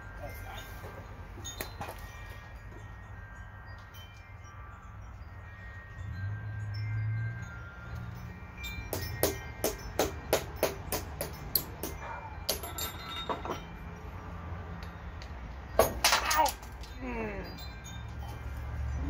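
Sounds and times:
hammer tapping on a chisel: 0:08.9 - 0:12.7.

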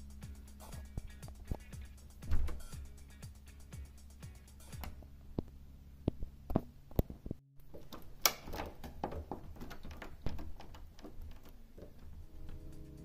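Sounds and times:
combination lock clicking and rattling: 0:07.6 - 0:12.2.

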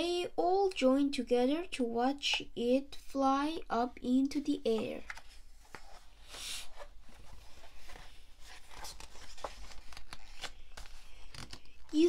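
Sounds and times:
book page turning: 0:05.0 - 0:12.0
paper rustling and clicking: 0:08.6 - 0:12.0.

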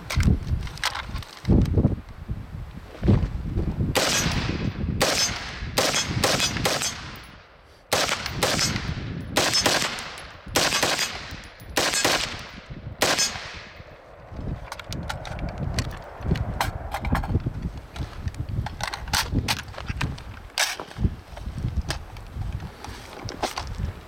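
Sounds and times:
rifle shots with echo: 0:04.0 - 0:13.9.

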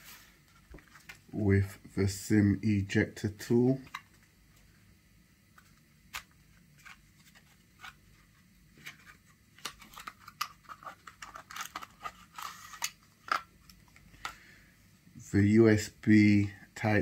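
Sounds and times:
paper packaging crinkling: 0:06.1 - 0:14.3.

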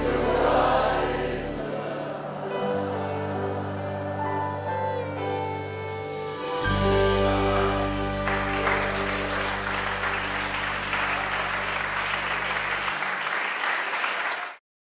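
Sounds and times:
band holding a chord: 0:00.0 - 0:13.1
audience applauding: 0:07.2 - 0:14.6.

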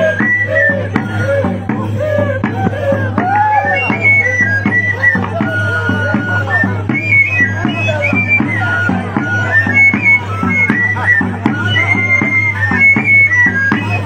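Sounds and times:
steady drumbeat: 0:00.0 - 0:14.0.

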